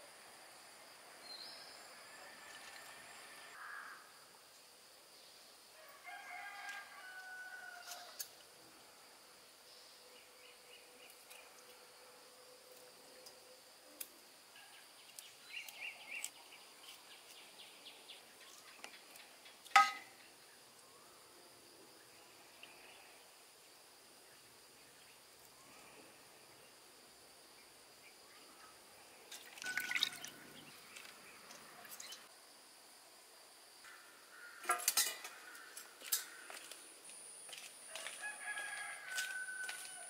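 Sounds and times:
faint high insect drone: 0.0 - 40.0
rooster crowing: 5.8 - 8.2, 37.9 - 40.0.

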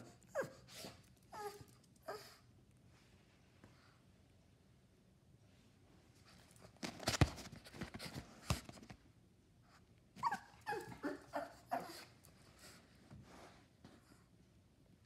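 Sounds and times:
dog whining cries: 0.0 - 2.4, 10.2 - 12.1.

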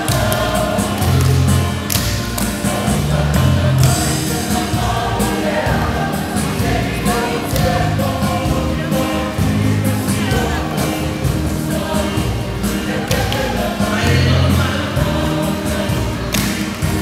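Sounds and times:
percussive claps keeping a beat: 0.0 - 8.4, 12.9 - 14.1, 16.0 - 17.0
group singing in chorus: 0.0 - 17.0.

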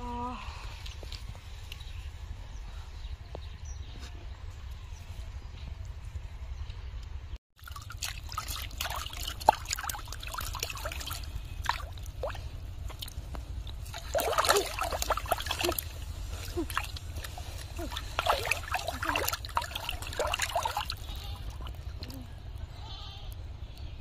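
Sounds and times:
fish thrashing at water surface: 7.6 - 21.9
water drips and plops: 7.6 - 22.2
river water splashing and trickling: 7.6 - 22.3.

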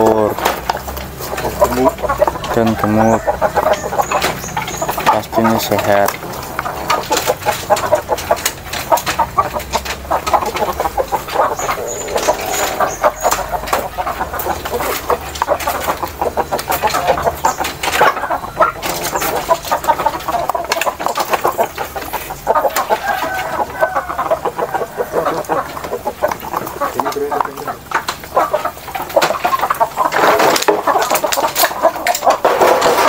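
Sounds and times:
beaks pecking in wooden troughs: 0.0 - 33.0
chickens clucking: 0.0 - 33.0
loud bird call: 11.0 - 14.9.

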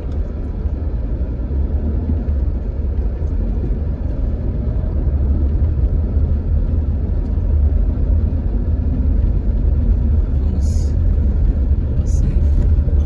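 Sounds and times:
car driving interior rumble: 0.0 - 13.0.

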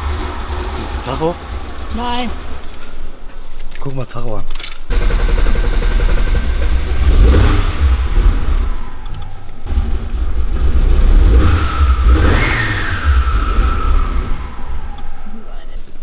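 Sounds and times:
car engine revving: 0.0 - 2.7, 4.9 - 15.4
turbo whine: 4.9 - 15.4.

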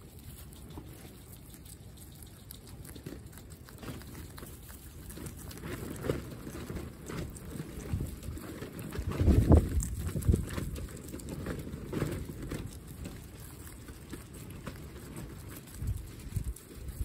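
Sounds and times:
guinea pigs munching greens: 0.0 - 17.0
wind rumble on microphone: 5.4 - 17.0.

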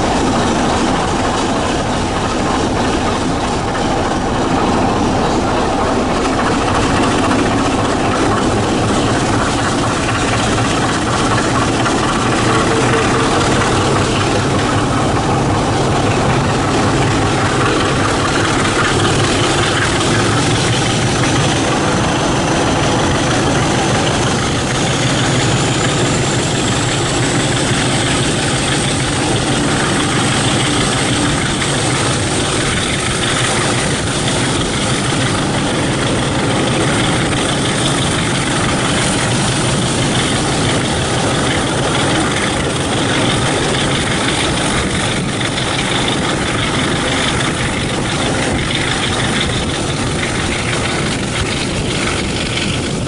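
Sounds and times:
diesel locomotive engine running: 0.0 - 53.0
wheel and rail noise: 0.0 - 53.0
wind: 0.0 - 53.0.

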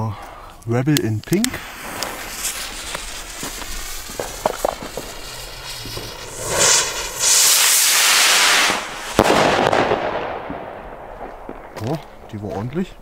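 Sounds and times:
crackling tail: 0.3 - 13.0
fuse sputtering with pops: 0.6 - 5.1
rocket launch rushing hiss: 1.4 - 11.2
firework bang: 1.6 - 12.3.

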